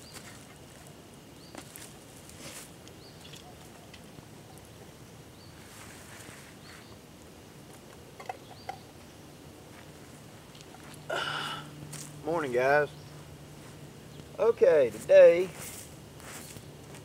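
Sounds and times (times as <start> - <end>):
rustling of pine needles: 0.0 - 4.2, 5.4 - 8.0, 11.8 - 17.0.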